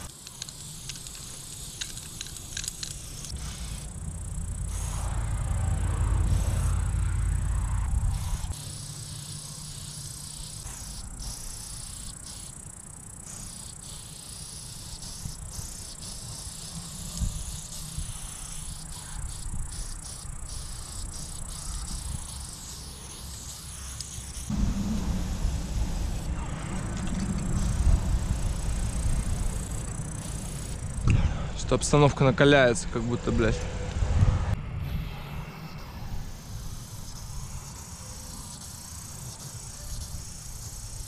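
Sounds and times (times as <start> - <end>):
spray paint can hissing: 0.0 - 6.9, 8.0 - 31.1, 34.8 - 41.0
high insect trill: 0.0 - 31.1, 34.8 - 41.0
low rumble: 3.2 - 8.5, 24.5 - 31.6.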